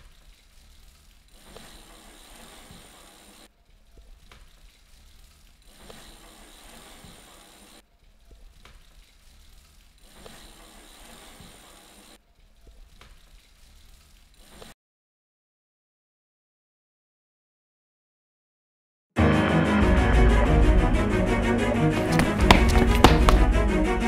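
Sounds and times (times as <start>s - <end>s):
bicycle freewheel ticking: 0.0s - 3.5s, 4.2s - 14.5s.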